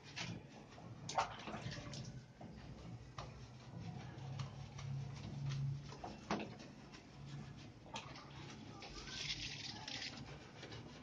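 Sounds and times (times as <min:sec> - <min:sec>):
water splashing in a tub: 0:01.1 - 0:02.2, 0:07.9 - 0:10.3.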